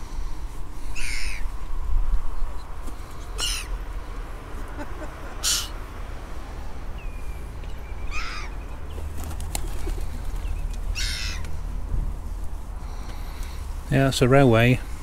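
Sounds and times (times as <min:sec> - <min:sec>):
gulls giving harsh calls: 0:00.9 - 0:01.5, 0:03.3 - 0:03.8, 0:04.8 - 0:05.8, 0:08.0 - 0:08.7, 0:09.6 - 0:11.7.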